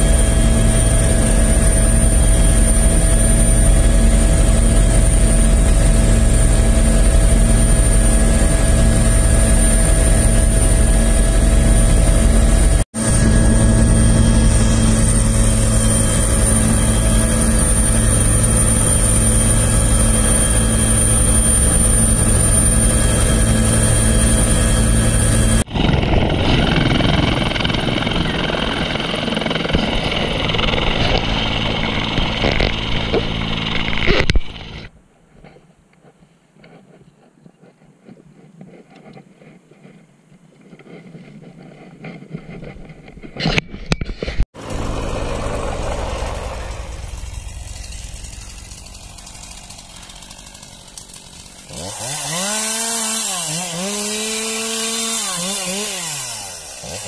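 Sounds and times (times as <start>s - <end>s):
helicopter hovering overhead: 0.0s - 34.9s, 44.6s - 53.2s
helicopter turbine and rotor: 0.0s - 34.9s, 44.6s - 57.0s.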